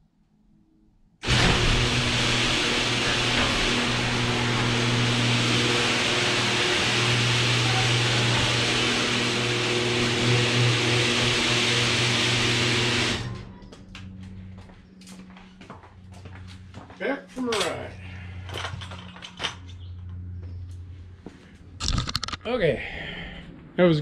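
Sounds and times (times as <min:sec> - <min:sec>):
garage door opener motor hum: 0:01.2 - 0:15.4.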